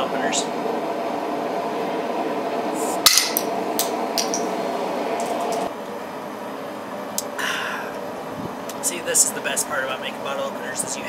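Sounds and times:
bottle cap hiss and pop: 3.1 - 4.5.

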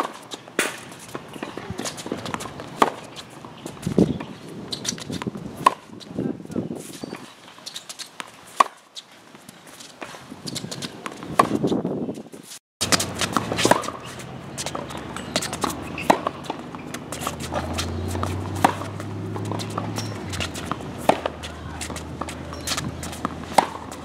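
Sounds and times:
tennis balls bouncing on hard court: 0.0 - 6.2, 10.5 - 11.8, 12.8 - 24.0
tennis balls struck by rackets: 0.0 - 6.2, 10.0 - 11.7, 12.8 - 24.0
footsteps and shoe scuffs: 6.7 - 24.0.

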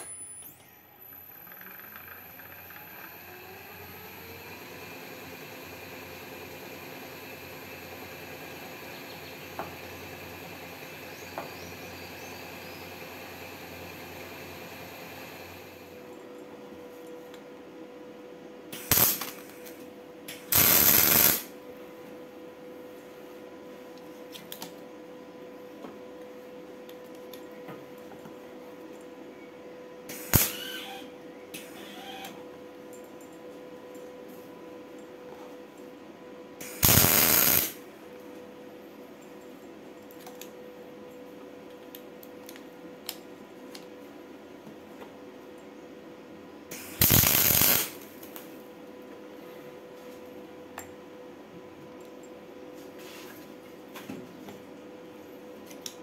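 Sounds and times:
steady electrical hum: 0.0 - 56.0
welding arc crackling: 18.8 - 21.6, 30.1 - 32.2, 36.6 - 37.8, 46.7 - 48.5.

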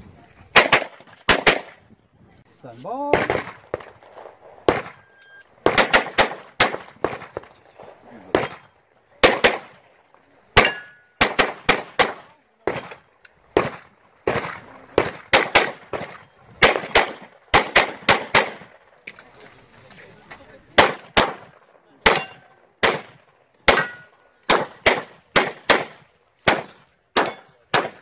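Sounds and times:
handgun shots: 23.7 - 28.0.

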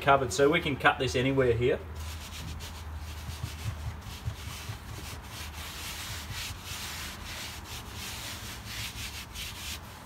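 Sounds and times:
palms scratching on carpet: 2.0 - 10.0.

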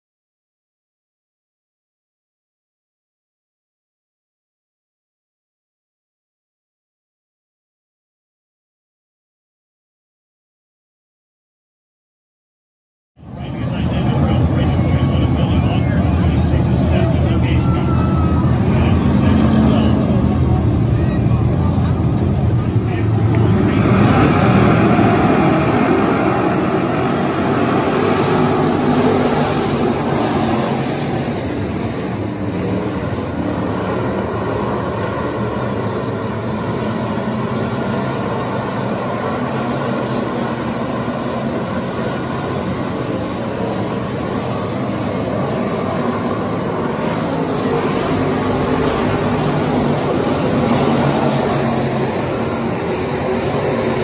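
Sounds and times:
race car engines at racing speed: 13.2 - 54.0.

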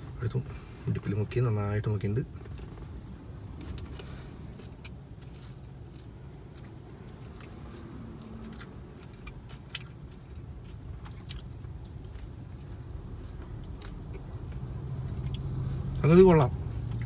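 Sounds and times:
low steady hum: 0.0 - 17.0
man chewing crunchy food: 2.4 - 16.0.

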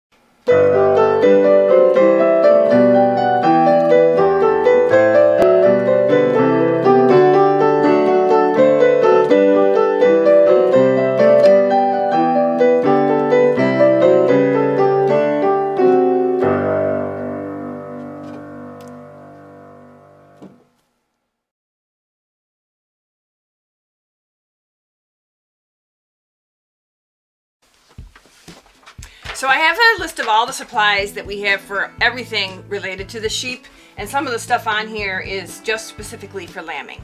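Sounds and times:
piano music: 0.5 - 20.7, 28.9 - 37.0.

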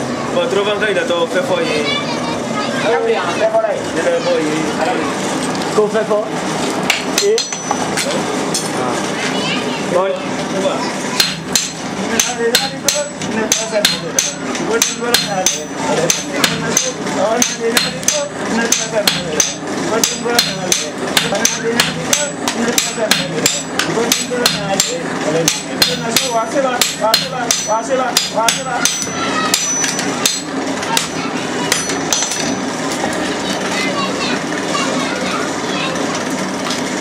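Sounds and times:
hammers striking iron on anvil: 6.9 - 8.1, 11.2 - 32.6.

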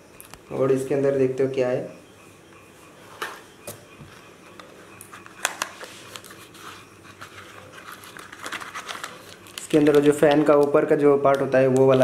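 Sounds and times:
cardboard and paper rustling: 5.6 - 10.7.

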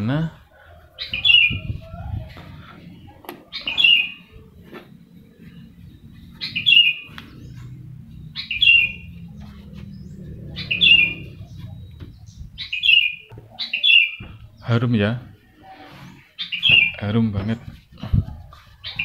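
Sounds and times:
bird chirping: 0.6 - 17.8, 18.7 - 19.0
low steady rumble: 4.2 - 13.3.

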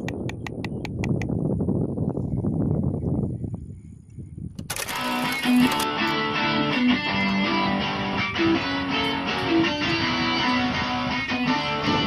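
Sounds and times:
instrumental background music: 5.1 - 12.0.

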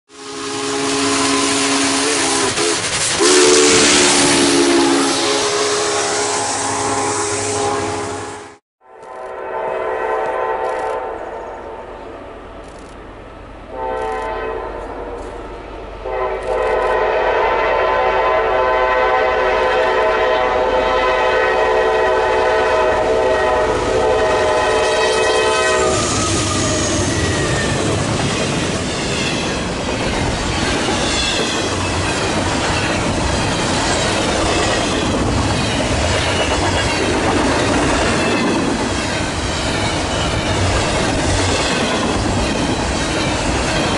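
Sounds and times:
locomotive air horn blasts: 0.1 - 12.0, 13.7 - 15.2, 16.0 - 27.3.

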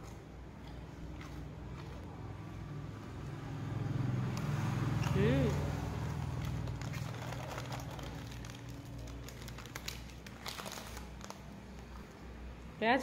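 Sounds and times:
dog crunching a biscuit: 4.8 - 12.2.

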